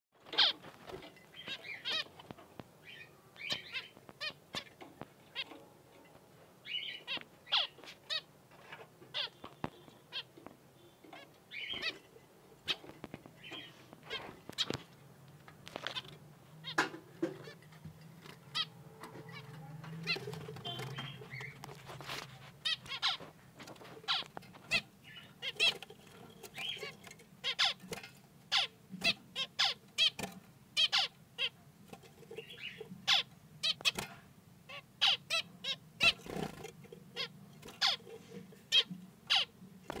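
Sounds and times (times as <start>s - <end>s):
finches calling: 9.1s - 12.0s, 24.1s - 27.8s.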